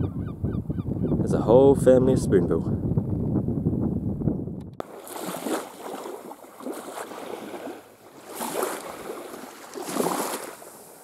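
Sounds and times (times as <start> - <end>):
seawater sloshing and lapping: 4.8 - 11.0.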